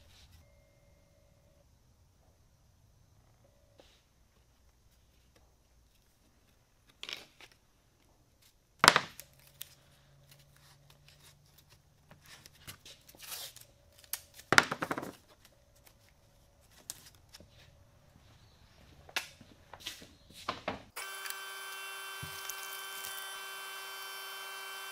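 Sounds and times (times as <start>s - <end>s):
tape ripping: 21.0s - 24.1s
tape crackling: 21.0s - 24.2s.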